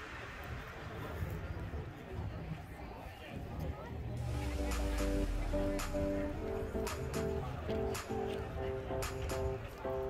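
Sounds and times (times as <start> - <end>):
held melodic notes: 4.2 - 10.0
regular drum hits: 4.4 - 8.2.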